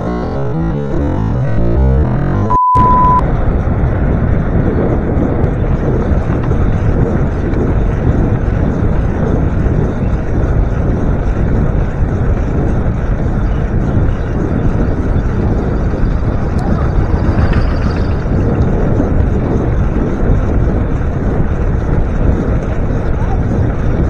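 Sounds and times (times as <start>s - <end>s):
wind on microphone: 0.0s - 24.0s
short high beep: 2.4s - 3.2s
bicycle tyres rolling on pavement: 3.3s - 24.0s.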